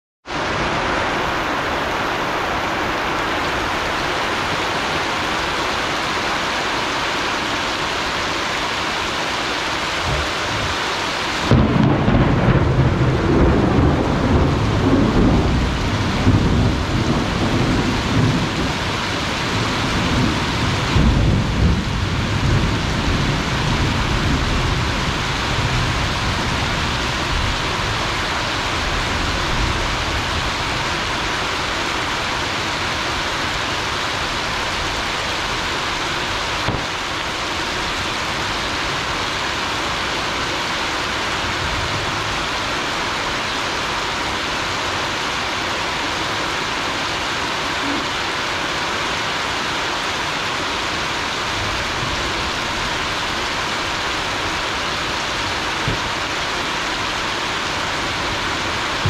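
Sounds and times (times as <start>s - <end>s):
heavy rain falling: 0.2s - 59.0s
thunder rumbling: 9.6s - 39.5s.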